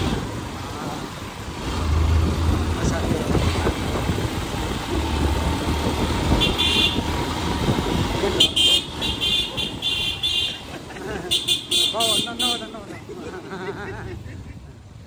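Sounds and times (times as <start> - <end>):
motorcycle engines: 0.0 - 15.0
road noise: 0.0 - 15.0
vehicle horn honking: 6.3 - 7.1, 8.4 - 10.6, 11.3 - 12.8.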